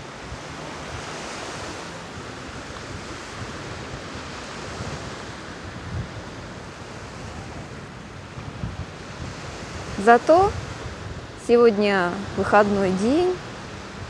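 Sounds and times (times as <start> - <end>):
surf washing onto beach: 0.0 - 14.0
wind rumble on microphone: 0.0 - 14.0.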